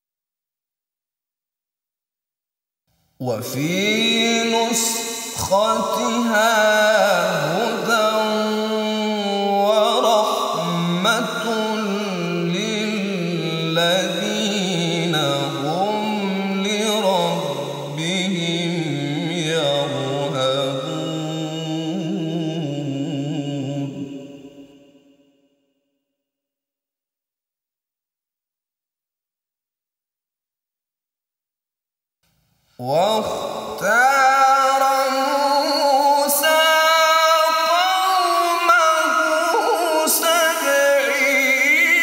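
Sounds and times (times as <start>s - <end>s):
man reciting melodically: 3.2s - 24.5s, 32.8s - 42.0s.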